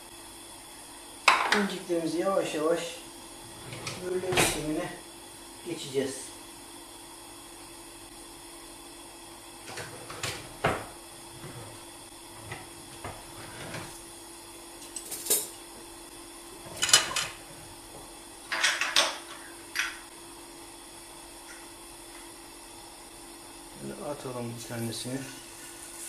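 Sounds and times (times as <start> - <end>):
kitchenware knocking and clinking: 16.7 - 17.4, 18.5 - 20.0.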